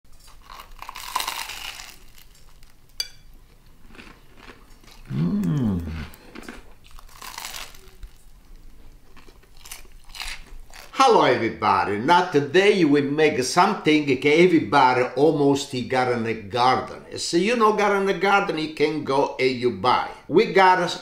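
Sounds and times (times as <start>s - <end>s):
crunchy bites and chewing: 0.2s - 2.8s, 3.9s - 10.9s
person humming mmm: 5.0s - 6.4s.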